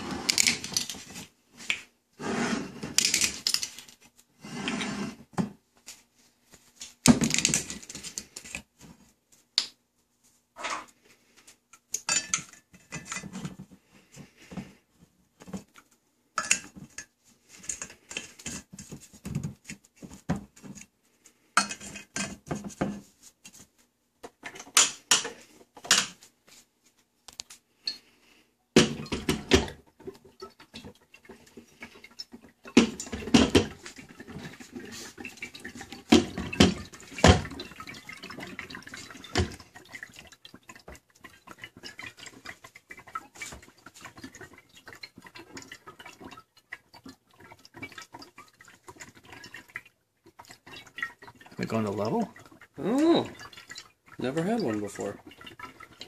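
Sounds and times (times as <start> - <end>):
glass bottles clinking: 12.0 - 13.2.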